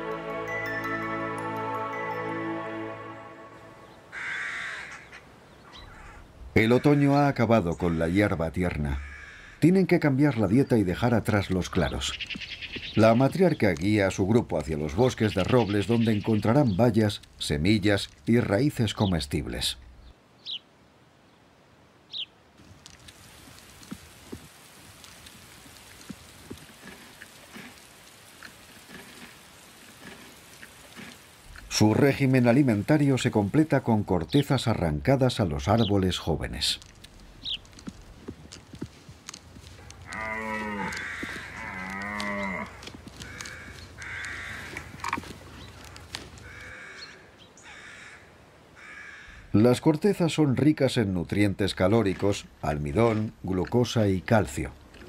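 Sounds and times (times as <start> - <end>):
drawn-out lowing calls: 0.0 - 19.8, 23.7 - 49.7
short harsh caws: 4.1 - 5.2, 5.8 - 6.2, 9.0 - 9.6, 40.0 - 45.3, 46.4 - 49.5
soft hiss: 19.0 - 34.5
small ticks: 22.6 - 31.7, 36.8 - 46.9
falling bird chirp: 37.3 - 37.9.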